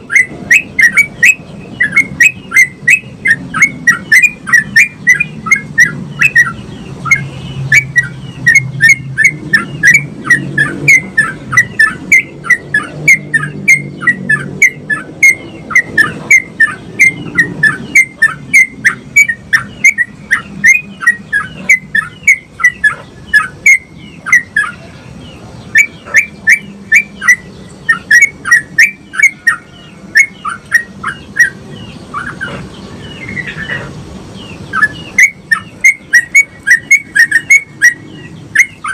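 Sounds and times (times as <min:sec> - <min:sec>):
bird singing rapid chirps: 0:00.0 - 0:38.9.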